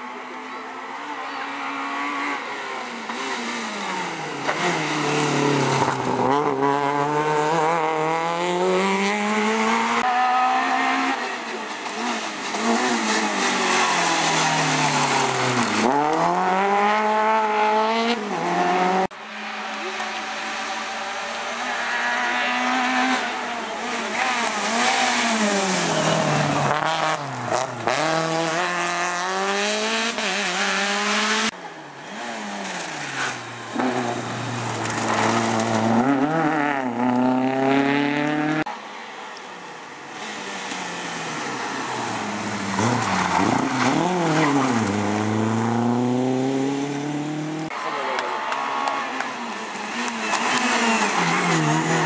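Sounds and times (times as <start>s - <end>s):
rally car engines revving: 0.0s - 52.0s.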